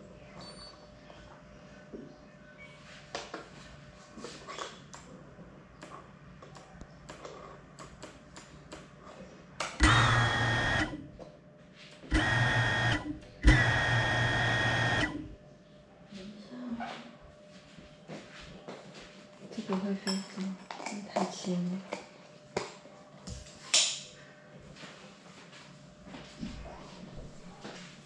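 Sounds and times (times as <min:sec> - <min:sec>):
drone motors whining: 0:09.8 - 0:11.2, 0:12.0 - 0:15.4.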